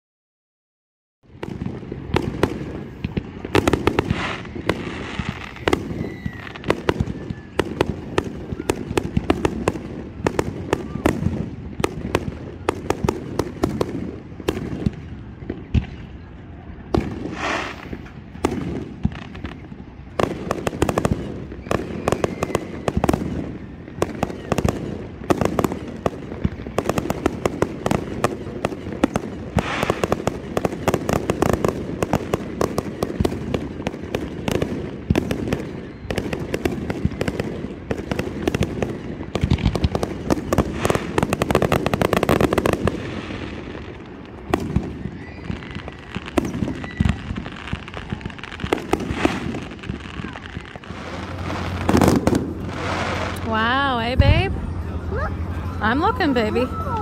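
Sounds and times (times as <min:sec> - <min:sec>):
fireworks crackling bangs: 0:01.3 - 0:57.0
voices: 0:49.8 - 0:57.0.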